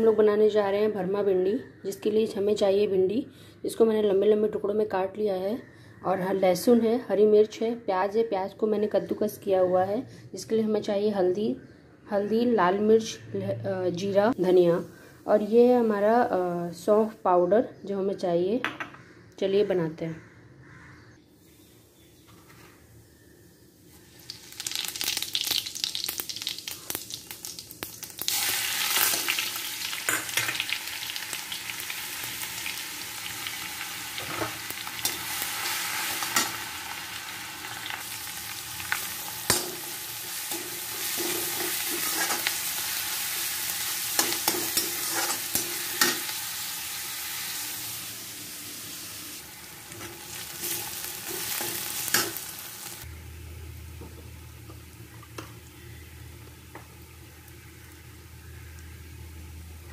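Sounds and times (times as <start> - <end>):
hot oil sizzling: 24.0 - 59.6
metal spatula scraping pan: 40.5 - 42.5, 44.2 - 46.3.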